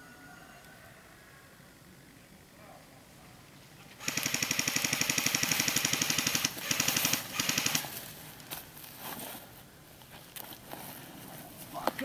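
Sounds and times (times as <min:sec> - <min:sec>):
airsoft rifle automatic fire: 0:04.0 - 0:07.9.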